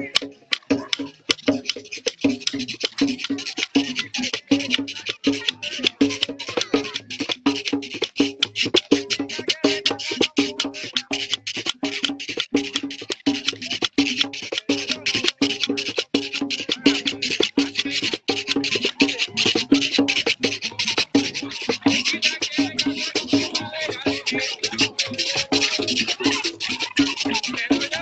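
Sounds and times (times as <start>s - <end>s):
clacking wooden percussion: 0.0s - 28.0s
drums: 0.0s - 28.0s.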